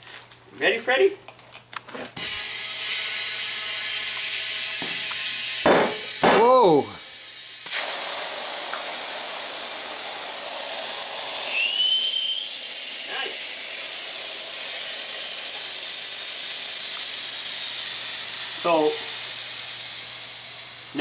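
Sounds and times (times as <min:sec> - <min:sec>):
compressed air hissing into tire: 0:02.2 - 0:21.0
short rising whistle: 0:10.9 - 0:13.0.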